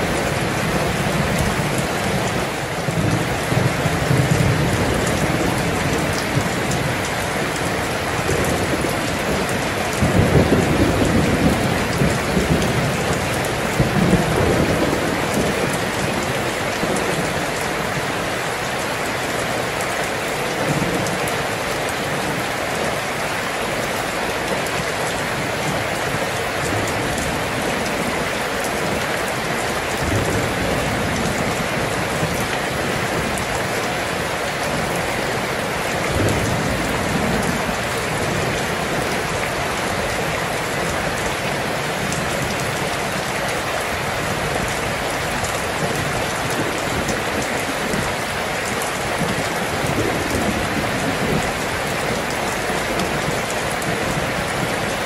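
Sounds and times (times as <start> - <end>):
steady rain: 0.0 - 55.0
distant thunder rumbling: 2.8 - 18.0.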